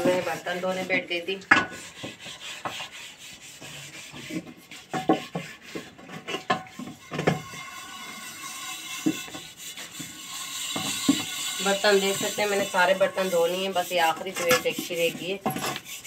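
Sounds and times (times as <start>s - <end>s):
pots being scrubbed: 0.0s - 16.0s
pots knocking and clinking: 1.4s - 1.8s, 6.2s - 9.4s, 10.0s - 13.2s.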